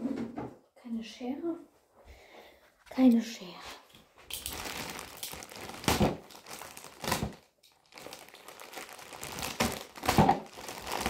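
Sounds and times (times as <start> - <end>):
packaging crinkling and tearing: 4.3 - 11.0.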